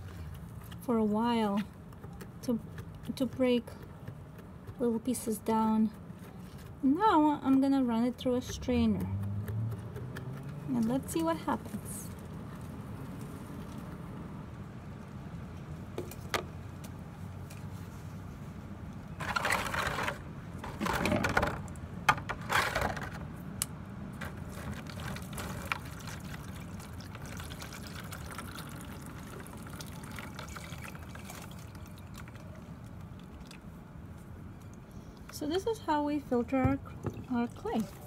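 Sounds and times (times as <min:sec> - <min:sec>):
low background noise: 0:00.0 - 0:38.0
slurry pouring through strainer: 0:24.4 - 0:32.4.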